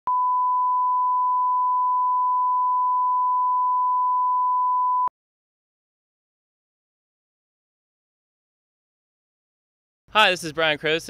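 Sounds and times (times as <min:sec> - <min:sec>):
steady test tone beep: 0:00.1 - 0:05.1.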